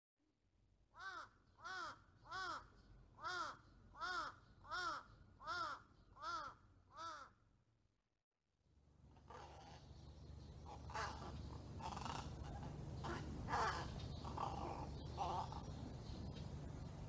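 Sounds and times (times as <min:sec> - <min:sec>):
crow cawing: 0:01.0 - 0:07.4, 0:10.7 - 0:15.6.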